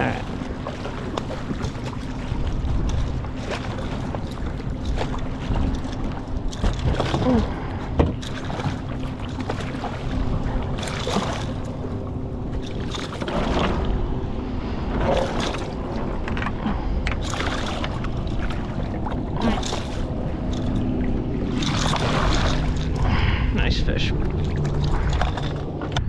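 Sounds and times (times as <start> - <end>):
steady low rumble: 0.0 - 26.0
fish splashing at the surface: 21.5 - 23.0.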